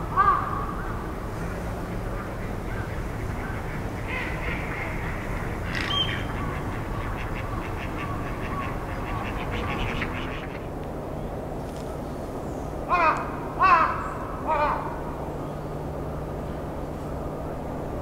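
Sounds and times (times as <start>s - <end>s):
outdoor background rumble: 0.0s - 18.0s
ducks calling: 1.4s - 10.8s.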